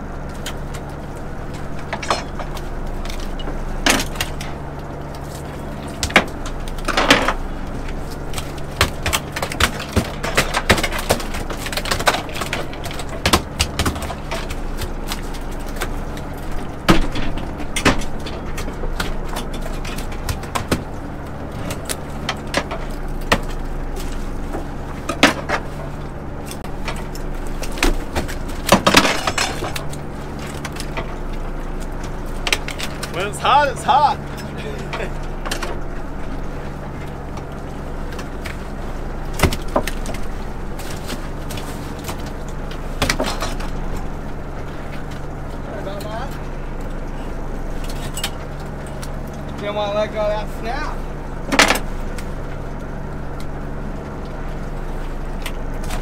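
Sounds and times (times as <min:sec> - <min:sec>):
boat engine drone: 0:00.0 - 0:56.0
gear clanking on deck: 0:00.0 - 0:56.0.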